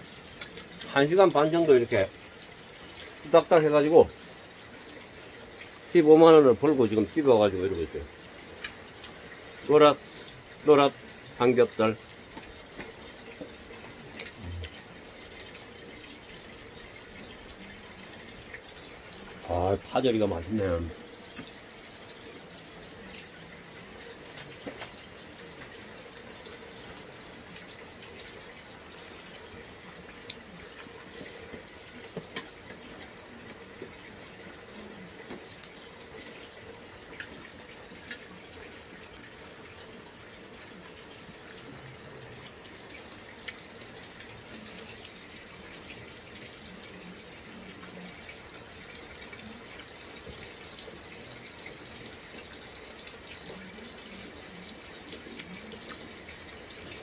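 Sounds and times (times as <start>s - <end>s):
water running: 0.0s - 57.0s
faint clicks and taps: 12.3s - 14.8s, 23.1s - 28.2s.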